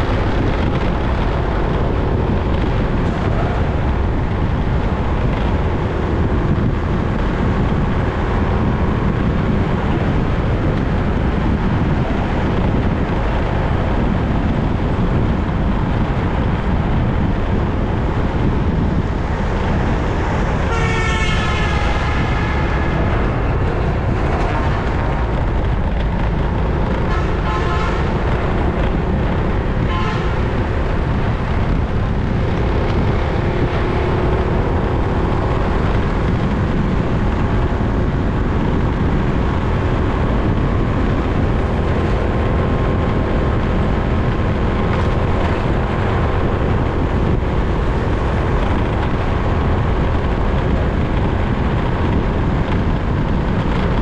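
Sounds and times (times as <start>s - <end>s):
wind and road rush: 0.0s - 54.0s
vehicle horn: 20.6s - 23.0s, 27.0s - 28.3s, 29.8s - 30.5s.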